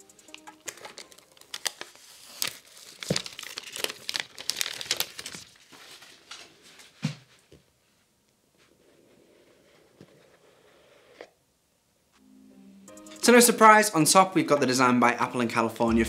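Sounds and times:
plastic shrink-wrap tearing: 0.6s - 6.0s.

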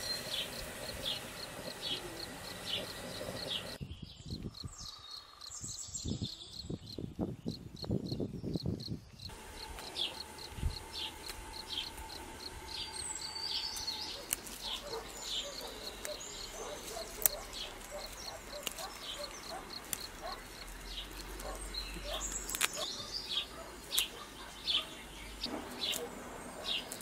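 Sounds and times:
rustling: 9.3s - 22.9s.

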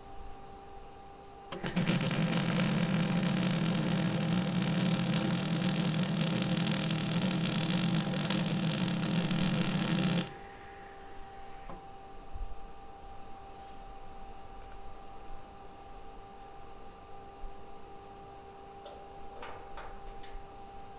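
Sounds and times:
faint steady workshop hum: 0.0s - 20.9s
arc welding buzzing crackle: 1.5s - 11.3s.

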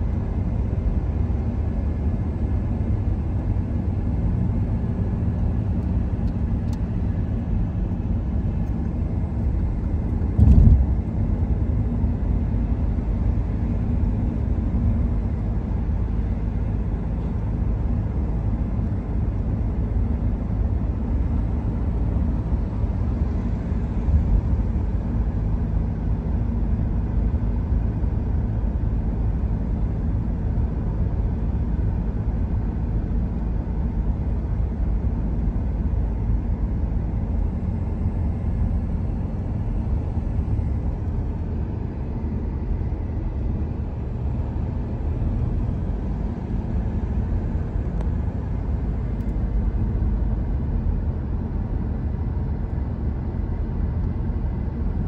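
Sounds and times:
car road and engine rumble: 0.0s - 55.0s
loud thump: 10.4s - 10.9s.

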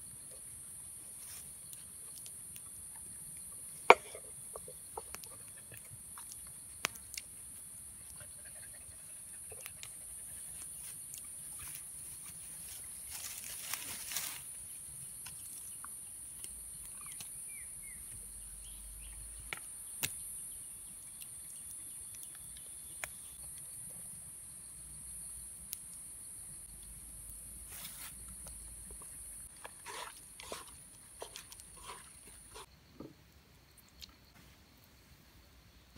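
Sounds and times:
bird chirps: 16.7s - 19.5s.

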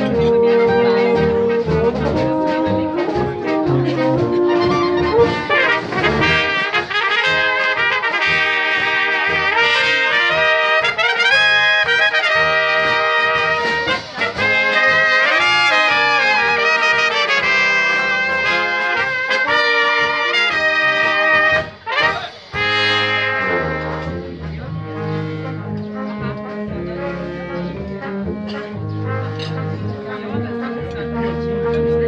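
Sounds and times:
pulsing bass line: 0.0s - 6.6s, 22.7s - 32.0s
brass band playing: 0.0s - 32.0s.

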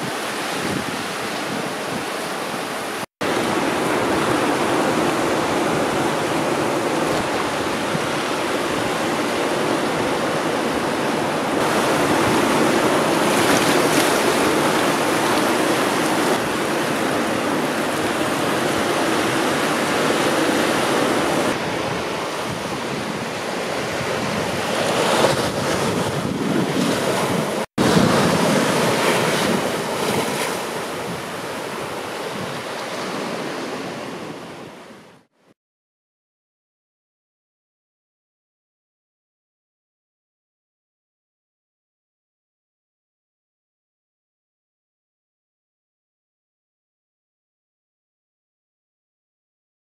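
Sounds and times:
seawater washing over rock pools: 0.0s - 33.4s
small waves breaking on beach: 0.0s - 35.3s.

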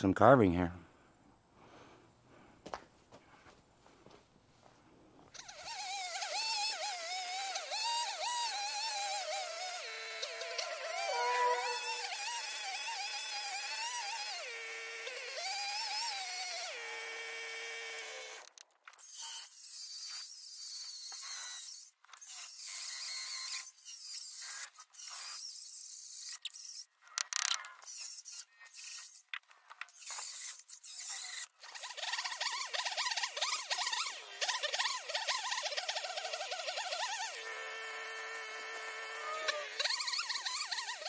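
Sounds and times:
chainsaw cutting wood: 5.3s - 26.4s, 29.9s - 41.0s
angle grinder carving wood: 5.3s - 26.8s, 27.4s - 41.0s.

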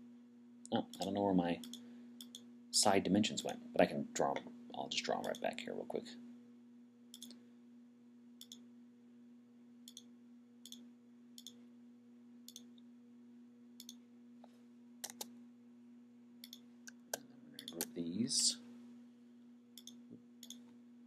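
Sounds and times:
low steady hum: 0.0s - 21.0s
computer mouse clicks: 0.9s - 2.5s, 5.2s - 5.5s, 7.1s - 7.4s, 8.4s - 8.6s, 9.9s - 10.8s, 11.4s - 11.6s, 15.0s - 15.3s, 16.4s - 17.9s, 19.8s - 20.7s.

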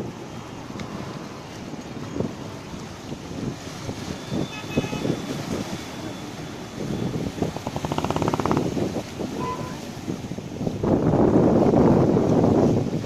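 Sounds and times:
sea waves: 0.0s - 13.0s
wind buffeting microphone: 0.0s - 13.0s
rapid buzzing rattle: 7.4s - 8.8s.

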